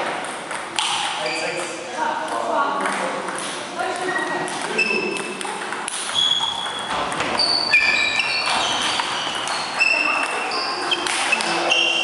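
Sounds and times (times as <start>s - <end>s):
table tennis ball pinging: 0.0s - 12.0s
faint voices: 6.8s - 12.0s.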